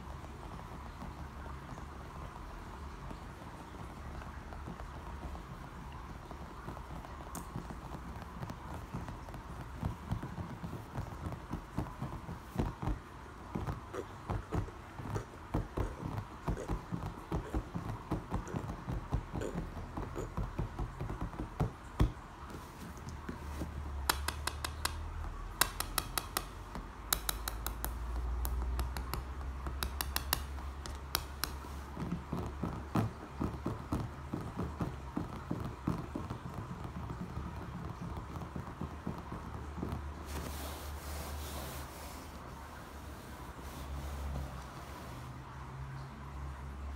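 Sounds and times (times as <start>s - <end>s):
fingernails tapping on brick: 23.3s - 37.4s
sharp nail clicks: 24.1s - 31.6s.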